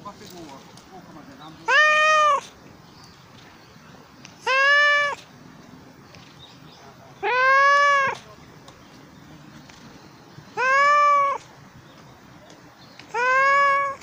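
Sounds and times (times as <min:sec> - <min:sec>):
cat meowing: 0:01.6 - 0:02.5, 0:04.4 - 0:05.2, 0:07.2 - 0:08.2, 0:10.6 - 0:11.5, 0:13.1 - 0:14.0.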